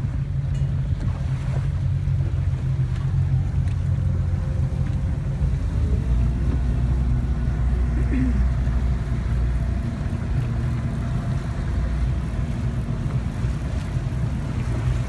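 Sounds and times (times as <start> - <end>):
boat engine droning: 0.0 - 15.0
sea noise: 0.0 - 15.0
wind: 0.0 - 15.0.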